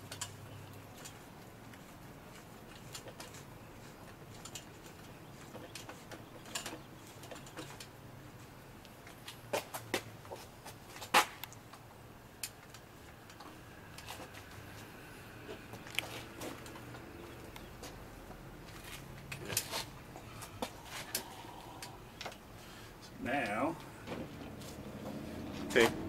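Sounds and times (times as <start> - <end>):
metal parts clicking and tapping: 0.0 - 7.9.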